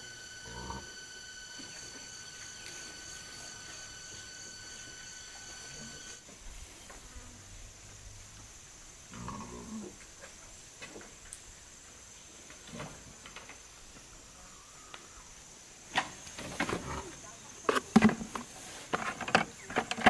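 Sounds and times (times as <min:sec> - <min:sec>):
high-pitched insect drone: 0:00.0 - 0:06.2.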